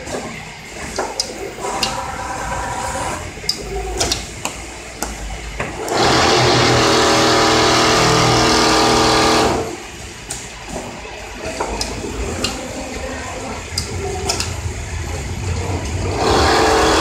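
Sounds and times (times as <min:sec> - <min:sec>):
sewing machine whirring buzz: 0:01.6 - 0:04.0, 0:05.8 - 0:09.9, 0:15.9 - 0:17.0.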